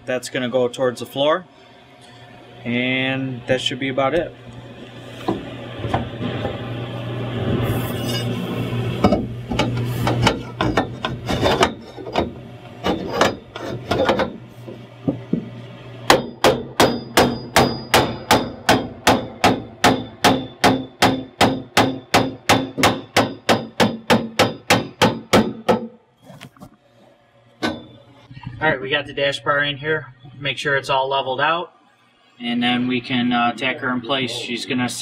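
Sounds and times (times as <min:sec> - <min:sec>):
hammer striking metal bar: 0:16.1 - 0:26.0.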